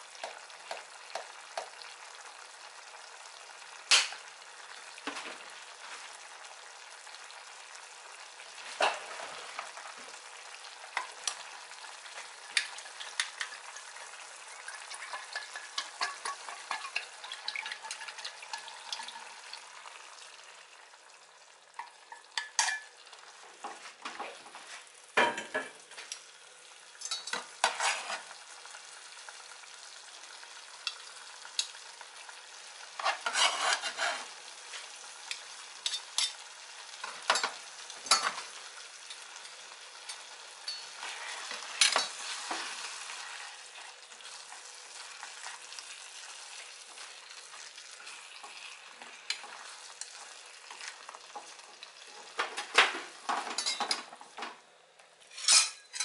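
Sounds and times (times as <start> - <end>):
food sizzling in a frying pan: 0.0 - 56.0
utensil scraping a pan: 14.6 - 19.3, 27.1 - 28.4, 32.9 - 34.8, 40.7 - 43.7, 55.3 - 56.0.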